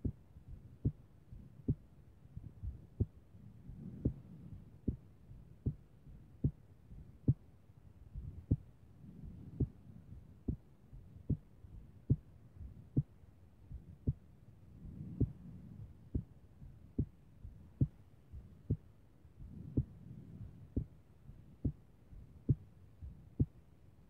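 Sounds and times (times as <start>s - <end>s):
heartbeat thumps: 0.0s - 7.5s, 8.1s - 23.7s.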